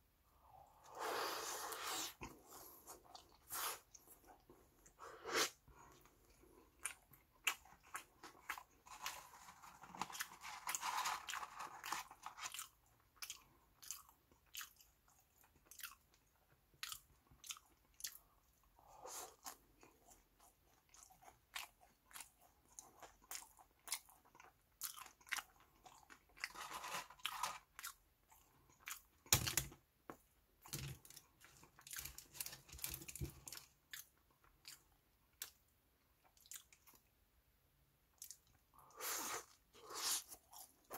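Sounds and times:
chewing crunchy fries: 5.4 - 29.6, 30.6 - 37.1.

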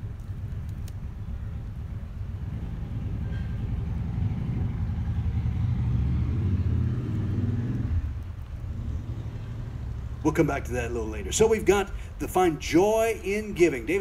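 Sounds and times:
vehicle driving past: 2.4 - 11.2.

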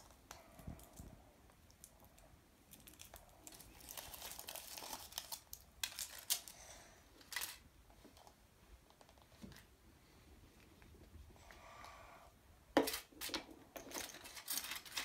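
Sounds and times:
foil wrapper crinkling and tearing: 2.7 - 6.6.

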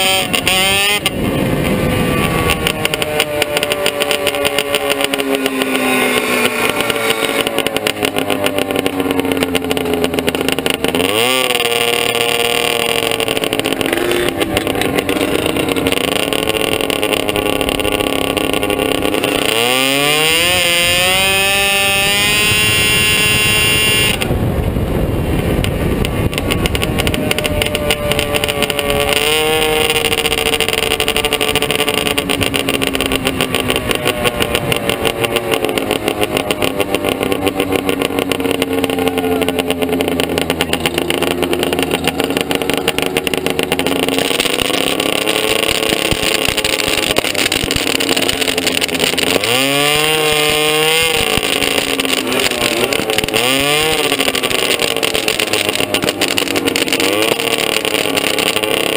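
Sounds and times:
engine revving sharply: 0.0 - 24.4
golf cart engines running: 0.0 - 58.9.

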